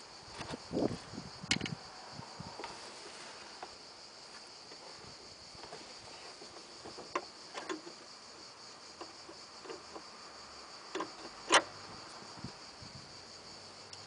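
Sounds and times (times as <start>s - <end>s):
insect trill: 0.0s - 14.0s
clicks and knocks in engine bay: 1.4s - 1.8s, 5.6s - 10.2s, 10.9s - 12.1s.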